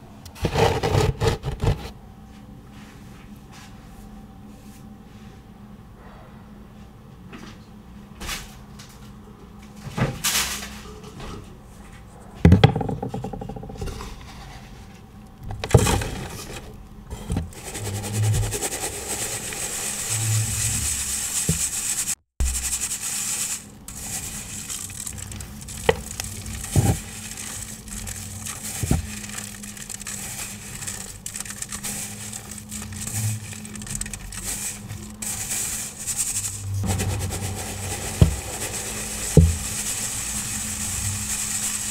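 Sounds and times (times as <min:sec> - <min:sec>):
sharp knocks and crunches: 0:00.3 - 0:01.9, 0:23.9 - 0:35.4, 0:36.0 - 0:39.9
powder being sifted: 0:15.6 - 0:41.9.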